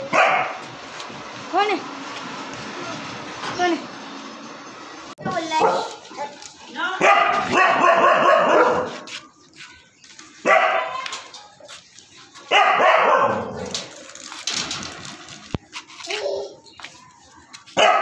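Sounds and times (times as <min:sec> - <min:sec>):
dog barking drawn-out: 0:00.1 - 0:00.6, 0:05.6 - 0:06.0, 0:07.0 - 0:09.0, 0:12.5 - 0:13.7, 0:17.8 - 0:18.0.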